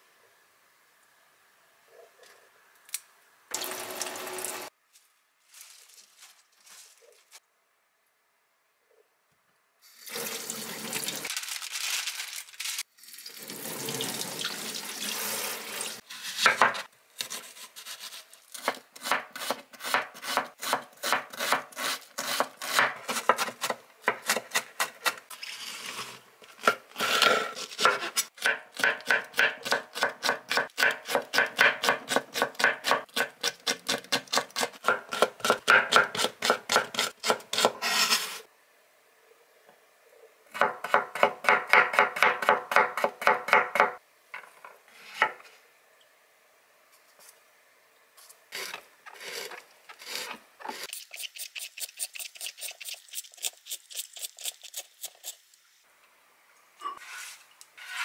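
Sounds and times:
tap water running: 3.5s - 4.7s, 9.9s - 11.3s, 13.0s - 16.0s
knife chopping on wooden board: 27.8s - 33.3s.

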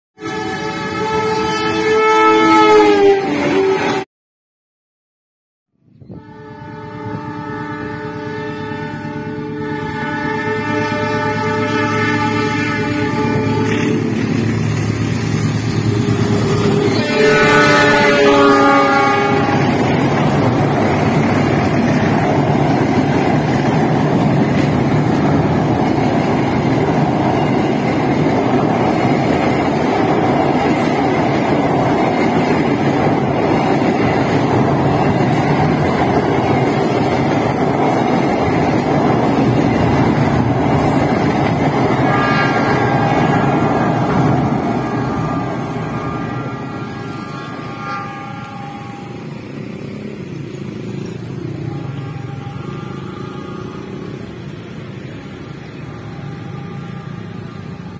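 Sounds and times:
train horn: 0.2s - 4.0s, 6.0s - 14.2s, 15.7s - 20.5s, 41.6s - 49.5s, 51.5s - 54.5s, 55.7s - 57.9s
train rumbling over steel bridge: 0.2s - 4.0s, 5.8s - 57.9s.

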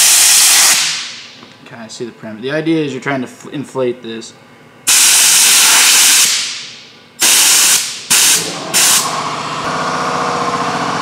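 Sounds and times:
compressed air hissing: 0.0s - 1.2s, 4.9s - 9.1s
steady mechanical hum: 0.0s - 11.0s.

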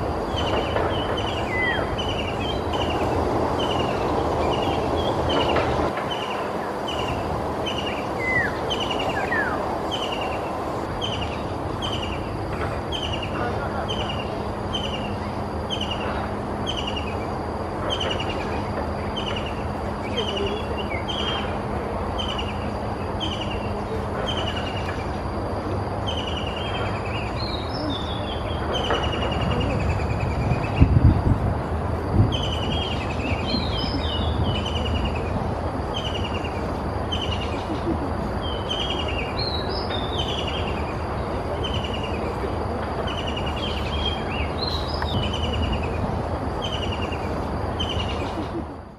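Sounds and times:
background hiss: 0.0s - 48.9s
kingfisher calling: 0.2s - 12.2s.

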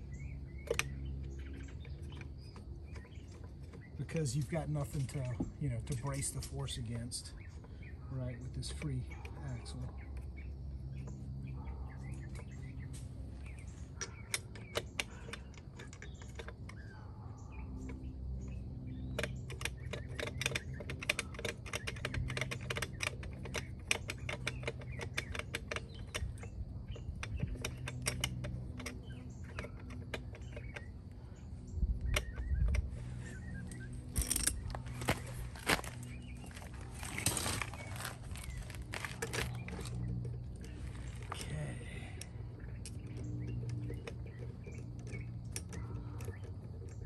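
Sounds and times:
lug nuts clicking on studs: 12.1s - 16.9s, 17.8s - 41.5s.

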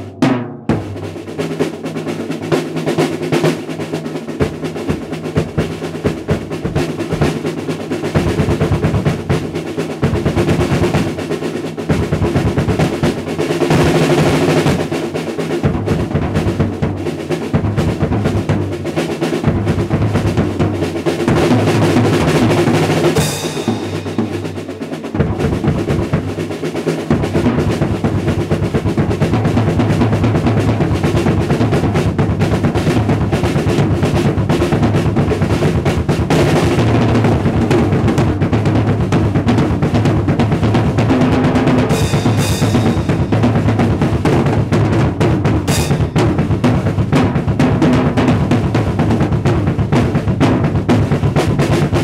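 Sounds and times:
drum kit solo: 0.0s - 52.0s
cymbal crashes: 23.2s - 26.1s, 45.7s - 46.6s.

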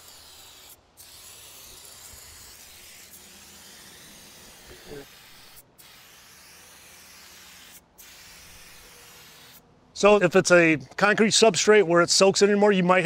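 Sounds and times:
spray adhesive hissing: 0.0s - 9.6s.

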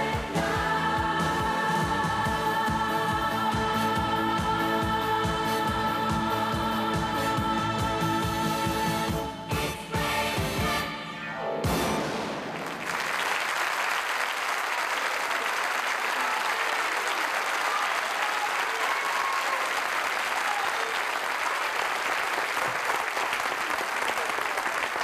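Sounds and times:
audience applauding: 12.4s - 25.0s.

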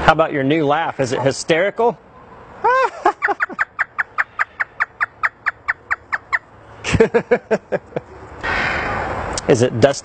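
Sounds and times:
parrot imitating laughter: 2.6s - 6.3s.

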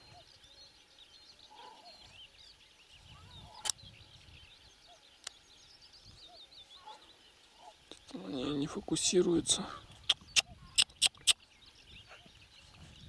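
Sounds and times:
faint songbirds chirping: 0.0s - 13.0s
sharp clicks: 10.1s - 11.4s.

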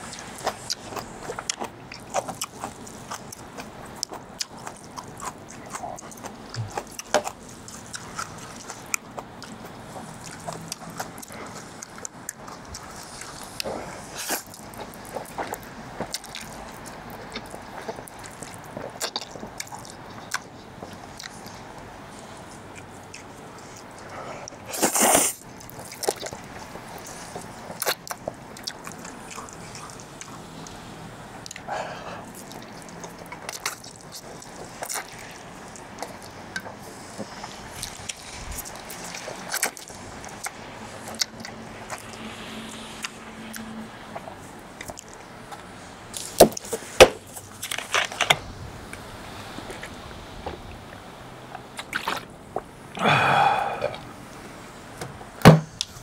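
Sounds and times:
wet chewing and lip-smacking: 0.0s - 52.7s
noodle slurp: 23.2s - 30.8s, 51.8s - 52.3s.

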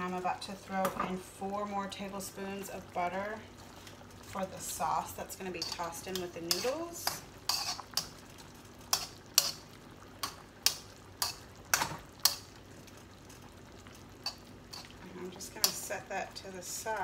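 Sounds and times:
butter sizzling: 0.0s - 17.0s
metal tongs clinking against wok: 5.6s - 8.1s.

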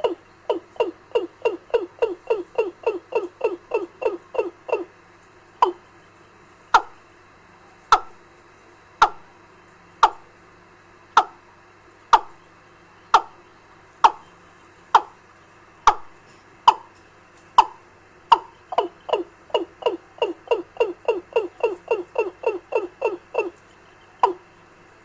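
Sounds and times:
recorded chicken call on loudspeaker: 0.0s - 4.9s, 17.6s - 23.6s, 24.2s - 24.4s.

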